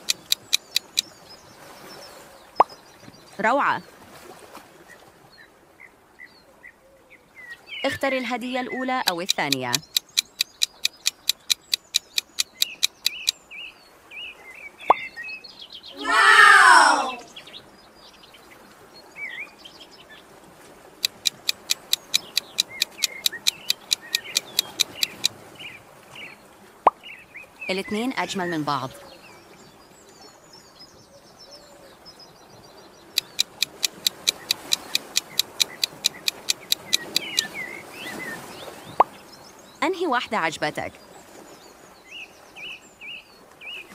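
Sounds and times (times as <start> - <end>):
countdown timer ticking: 0.0 - 1.0, 8.7 - 13.3, 21.0 - 25.3, 33.2 - 37.5
birds chirping: 0.0 - 3.8, 7.7 - 13.8, 21.0 - 25.3, 32.9 - 43.0.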